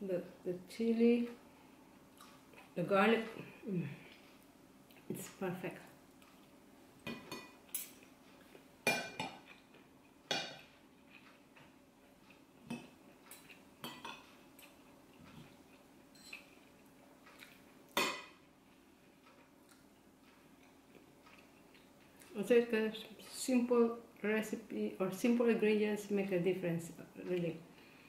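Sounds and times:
cutlery clinking on plates: 12.7s - 14.3s, 16.1s - 16.5s.

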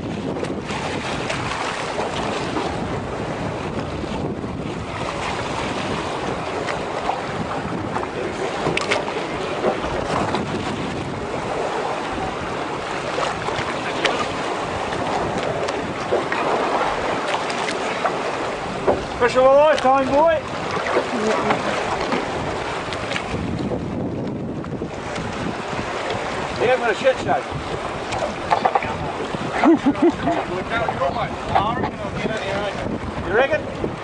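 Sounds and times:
water sloshing against boat hull: 0.0s - 34.0s
wind buffeting microphone: 0.0s - 34.0s
fish splashing: 19.7s - 23.4s.

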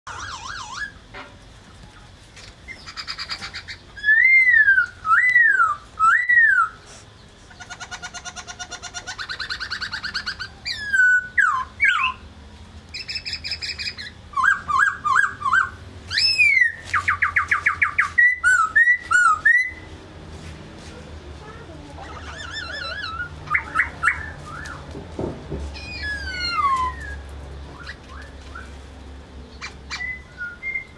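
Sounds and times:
bird singing whistled phrases: 2.7s - 6.8s, 9.1s - 12.2s, 12.9s - 19.9s, 22.1s - 24.8s, 25.8s - 28.7s, 29.6s - 30.9s.

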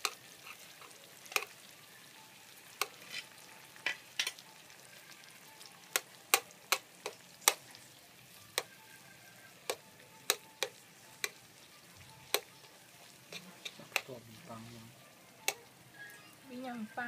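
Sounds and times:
faint sizzle of oil: 0.0s - 17.0s
chopsticks clicking against a pan: 0.8s - 1.5s, 5.9s - 7.6s, 9.7s - 11.4s, 12.3s - 12.5s, 13.3s - 14.2s, 15.4s - 15.6s.

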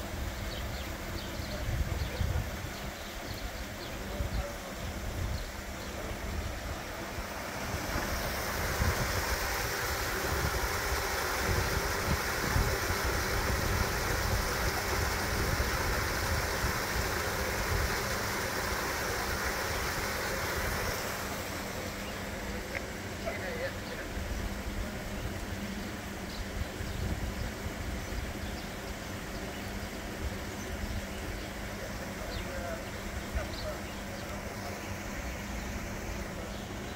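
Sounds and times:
wind rumble on microphone: 0.0s - 18.4s, 26.4s - 28.6s
water gushing and splashing: 4.7s - 23.1s.

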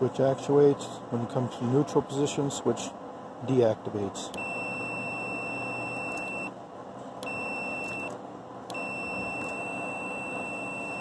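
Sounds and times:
multimeter continuity beep: 4.3s - 6.6s, 7.2s - 11.0s.

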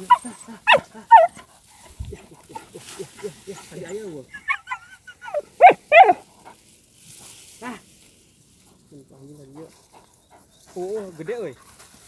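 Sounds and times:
dog barking: 0.0s - 1.4s, 4.5s - 6.2s
dog whining: 0.0s - 1.4s, 4.3s - 6.2s
dog yipping: 0.0s - 1.4s, 4.3s - 6.2s.

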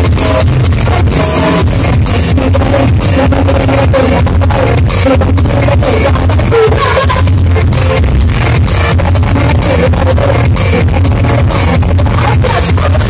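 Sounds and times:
band with strong bass: 0.0s - 13.0s
woman singing into microphone: 0.9s - 7.3s, 9.1s - 13.0s.

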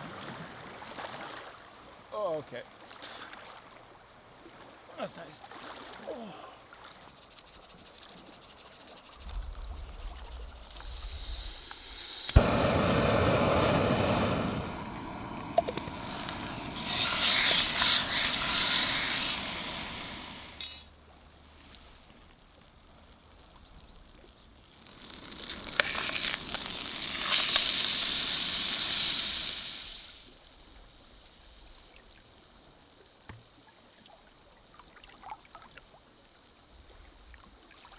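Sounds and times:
steak sizzling in frying pan: 10.8s - 20.5s, 24.6s - 30.2s.

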